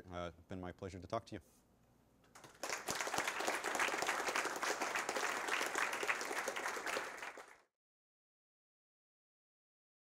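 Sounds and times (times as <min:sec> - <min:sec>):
audience applauding: 0:02.4 - 0:07.7.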